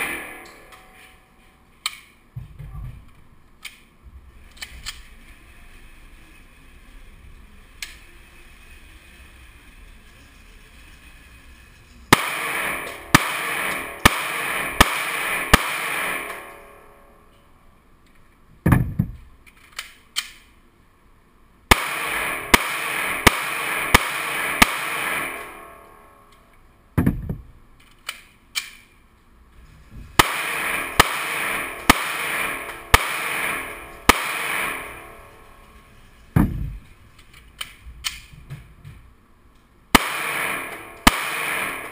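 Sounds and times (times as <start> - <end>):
pistol shots echoing indoors: 0.0 - 1.1, 12.1 - 17.3, 21.7 - 26.4, 30.2 - 35.8, 39.9 - 41.9
dull thumps: 36.4 - 36.8.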